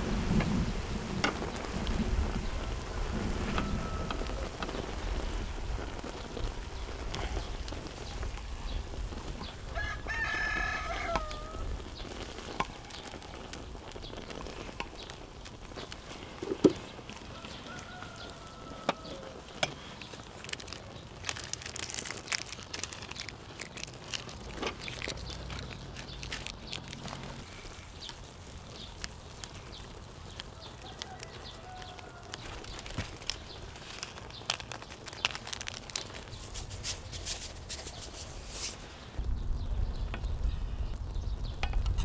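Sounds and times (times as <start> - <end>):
rooster crowing: 3.1 - 4.7, 9.7 - 11.7, 17.2 - 19.6, 30.5 - 32.7.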